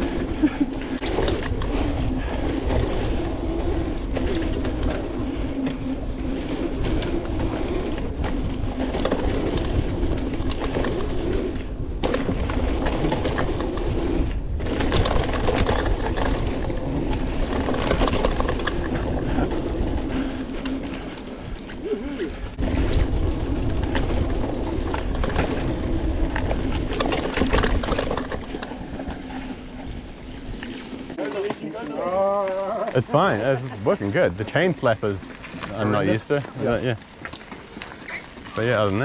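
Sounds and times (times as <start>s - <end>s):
bike tyres rolling over dirt: 0.0s - 39.0s.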